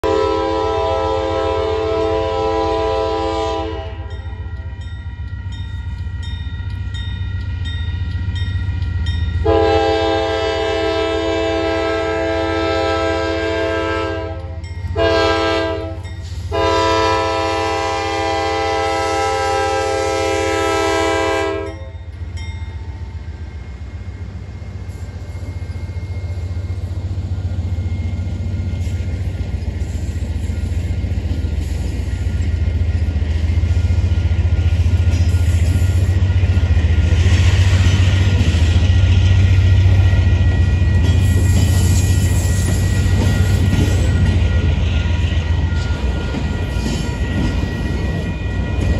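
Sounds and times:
locomotive air horn blasts: 0.0s - 4.2s, 9.4s - 21.9s
freight train rumble: 0.0s - 48.9s.

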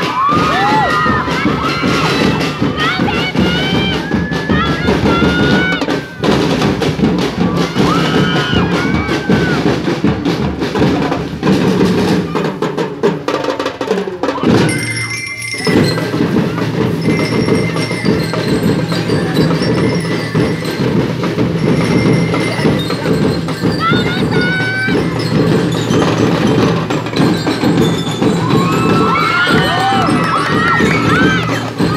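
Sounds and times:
snare and bass drum beats: 0.0s - 31.9s
lyre high ringing notes: 14.4s - 31.9s.

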